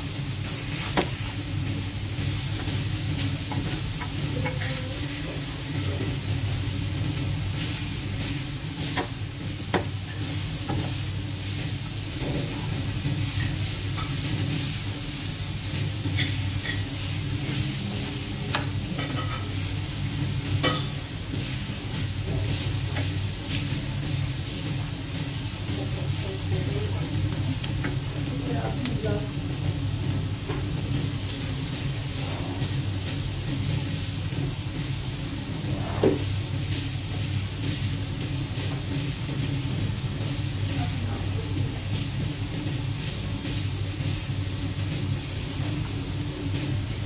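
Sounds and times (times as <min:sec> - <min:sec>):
food sizzling on a griddle: 0:00.0 - 0:47.0.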